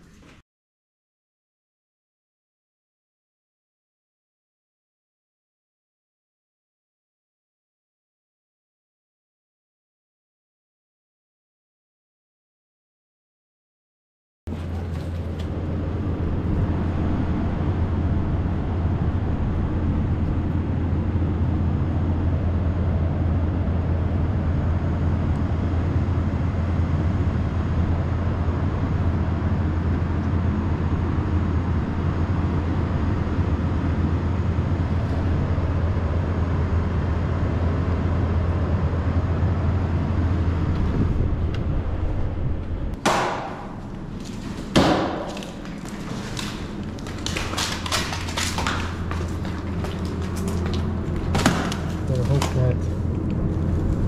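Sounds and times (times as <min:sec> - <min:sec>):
low urban rumble: 0:14.5 - 0:54.0.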